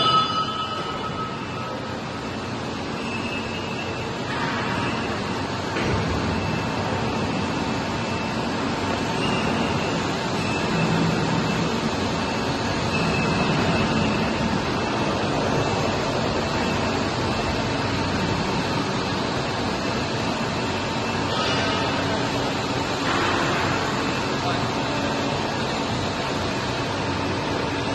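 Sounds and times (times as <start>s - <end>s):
hydraulic power unit running: 0.0s - 27.9s.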